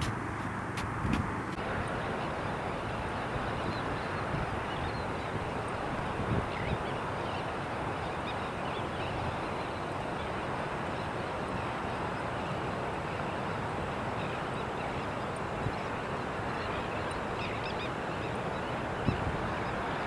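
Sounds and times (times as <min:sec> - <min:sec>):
outdoor background rumble: 0:00.0 - 0:06.6
distant bird chirps: 0:01.9 - 0:20.0.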